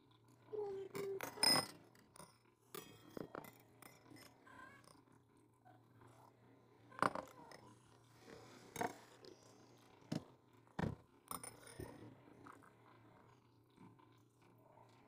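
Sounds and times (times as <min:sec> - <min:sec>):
metal spoons clinking on steel bowls: 0:01.0 - 0:04.3.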